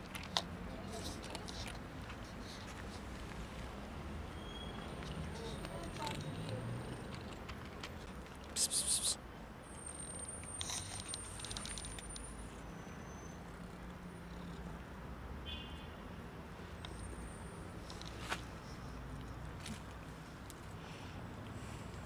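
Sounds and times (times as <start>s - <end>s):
cat crunching dry kibble: 0.0s - 3.4s, 4.8s - 9.1s, 10.4s - 12.2s.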